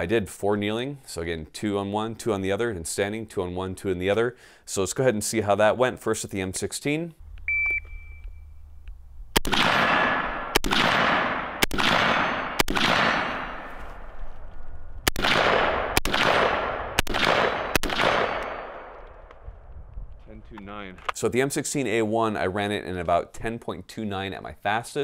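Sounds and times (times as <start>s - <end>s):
rifle shots with long echo: 9.3s - 19.7s.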